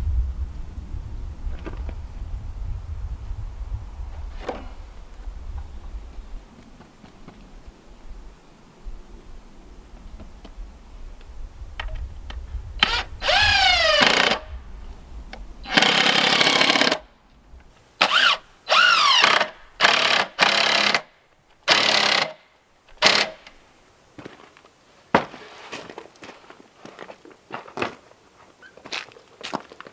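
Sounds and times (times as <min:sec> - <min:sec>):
cordless drill driving screws: 0:12.8 - 0:14.4, 0:15.7 - 0:17.0, 0:18.0 - 0:21.1, 0:21.7 - 0:22.4, 0:23.0 - 0:23.5.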